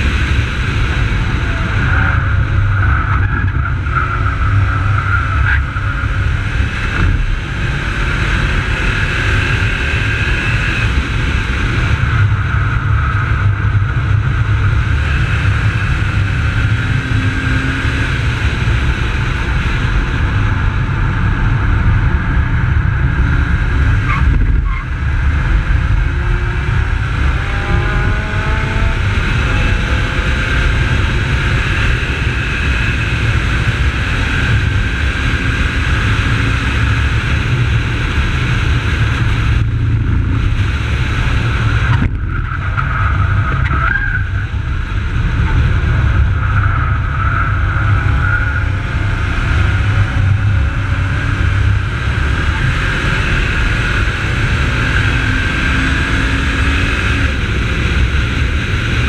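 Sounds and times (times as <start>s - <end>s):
car engine running hard: 0.0s - 59.0s
wind rumble on microphone: 0.0s - 59.0s.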